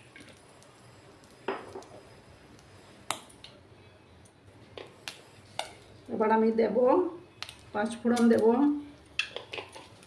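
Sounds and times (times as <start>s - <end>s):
hot oil spitting and popping: 0.0s - 3.6s, 4.6s - 6.2s, 7.3s - 10.0s.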